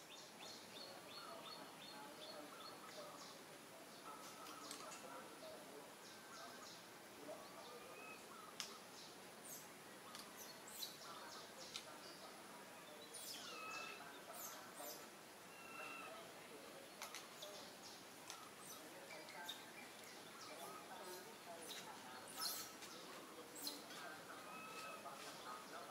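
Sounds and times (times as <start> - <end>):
birds chirping: 0.0 - 25.9
low hiss: 0.0 - 25.9
whistled bird notes: 14.9 - 16.2.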